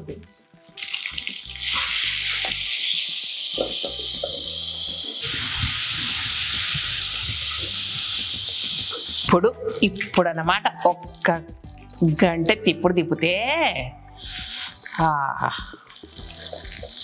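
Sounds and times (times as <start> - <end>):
hot oil sizzling: 0.6 - 10.0, 14.2 - 17.0.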